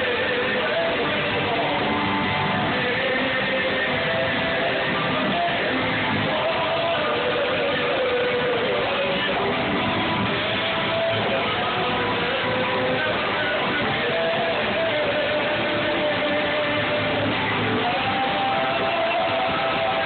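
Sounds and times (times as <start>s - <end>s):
church worship band: 0.0s - 20.0s
strummed guitars: 0.0s - 20.0s.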